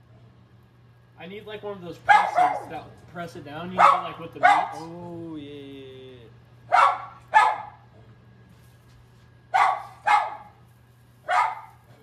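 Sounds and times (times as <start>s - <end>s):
dog barking: 2.1s - 2.9s, 3.8s - 4.8s, 6.7s - 7.9s, 9.5s - 10.6s, 11.2s - 12.0s.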